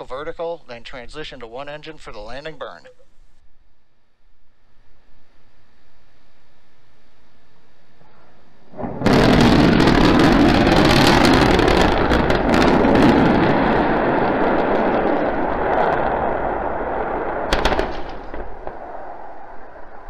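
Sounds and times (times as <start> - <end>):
rocket explosion roar: 8.0 - 20.0
sharp cracks: 8.8 - 20.0.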